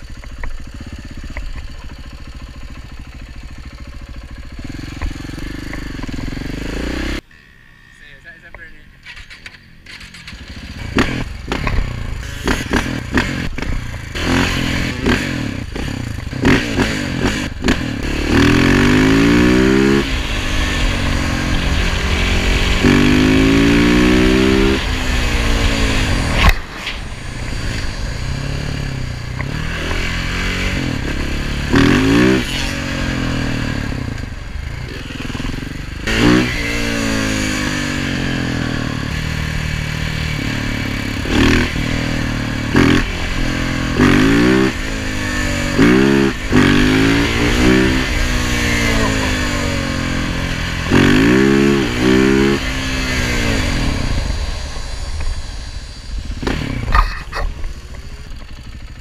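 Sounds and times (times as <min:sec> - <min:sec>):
motorcycle engine accelerating hard: 0:00.0 - 0:07.2, 0:09.8 - 0:59.0.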